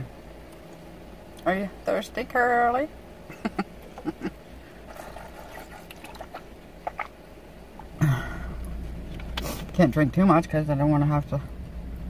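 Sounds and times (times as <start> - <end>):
person sipping and swallowing: 4.8 - 7.2.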